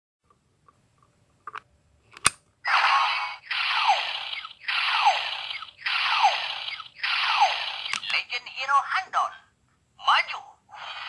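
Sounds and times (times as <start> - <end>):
electronic sound effect with falling sweep: 2.8 - 8.0
toy click: 7.8 - 8.2.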